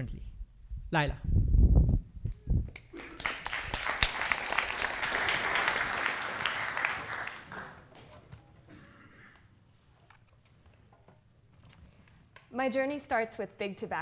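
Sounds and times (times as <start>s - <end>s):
audience applauding: 2.9s - 7.9s.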